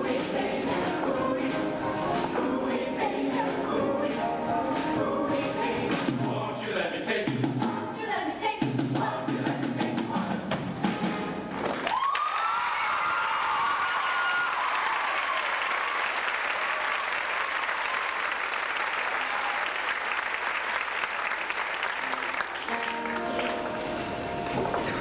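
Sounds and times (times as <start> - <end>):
choir holding a chord: 0.0 - 6.0
instrumental music: 0.0 - 6.5, 22.6 - 25.0
audience applauding: 11.5 - 25.0.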